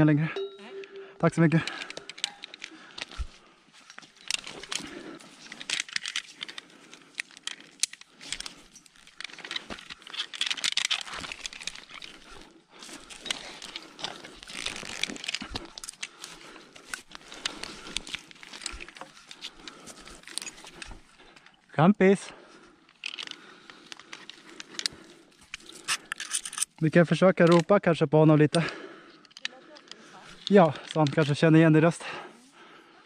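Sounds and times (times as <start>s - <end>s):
clicks of rope and climbing hardware: 0.6s - 32.6s
rustling against branches and bark: 2.1s - 21.4s.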